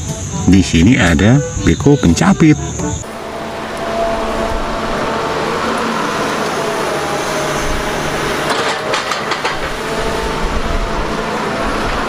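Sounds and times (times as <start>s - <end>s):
excavator engine running: 0.0s - 12.0s
sharp knocks: 7.8s - 10.0s.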